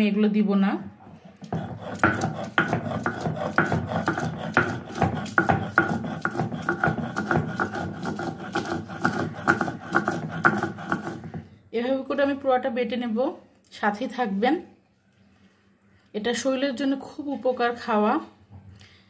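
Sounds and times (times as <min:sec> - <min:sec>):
grinding stone rubbing on stone: 0:01.4 - 0:11.5.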